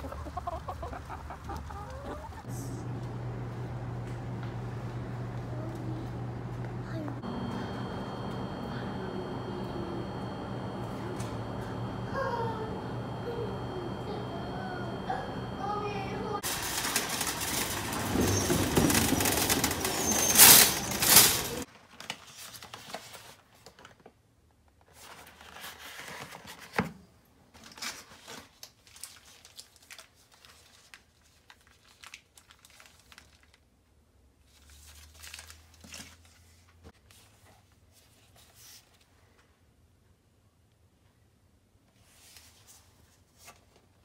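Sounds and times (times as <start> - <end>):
shopping cart being pushed: 16.4 - 21.7
grocery bags crinkling: 16.4 - 22.6, 27.6 - 33.7, 34.5 - 36.3.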